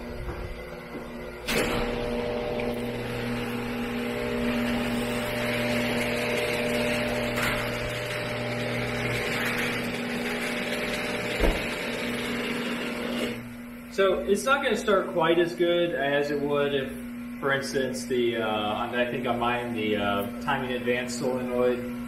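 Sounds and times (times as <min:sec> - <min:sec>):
garage door opener motor hum: 0:00.0 - 0:22.0
knock: 0:11.4 - 0:11.7.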